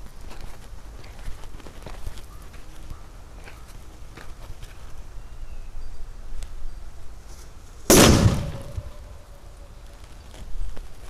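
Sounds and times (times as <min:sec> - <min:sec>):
firecracker bang: 0:07.9 - 0:09.2.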